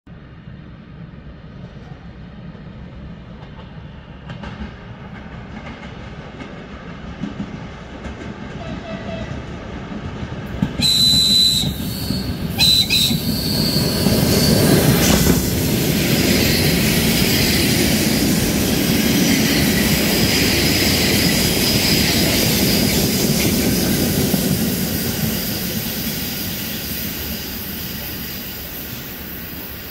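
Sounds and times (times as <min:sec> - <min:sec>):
train wheels rumbling on rails: 0:00.2 - 0:29.9
wheels clickety-clack: 0:04.3 - 0:13.3
train whistle blasts: 0:10.8 - 0:15.0.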